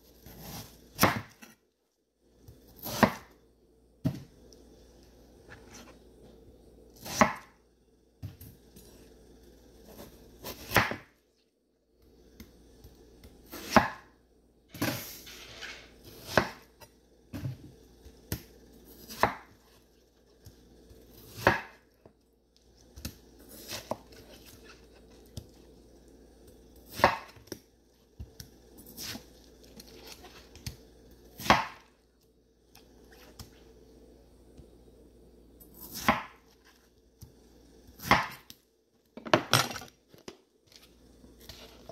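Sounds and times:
knife cutting watermelon: 0:00.1 - 0:01.6, 0:02.6 - 0:03.4, 0:07.0 - 0:07.6, 0:09.8 - 0:11.1, 0:13.4 - 0:14.1, 0:14.7 - 0:16.8, 0:23.0 - 0:25.5, 0:28.4 - 0:30.8, 0:35.7 - 0:36.9.

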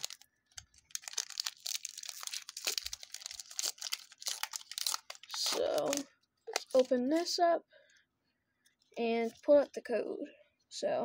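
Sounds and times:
foil wrapper crinkling: 0:00.0 - 0:07.3.

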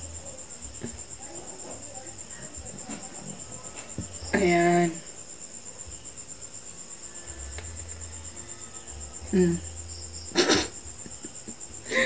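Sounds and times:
pulsing insect trill: 0:00.0 - 0:12.0
woman humming: 0:09.0 - 0:09.8.

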